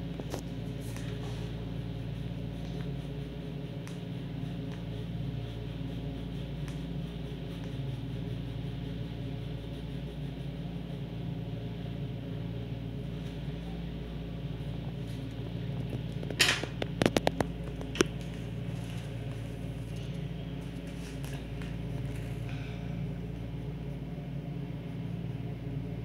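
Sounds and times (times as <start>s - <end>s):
low room hum: 0.0s - 26.0s.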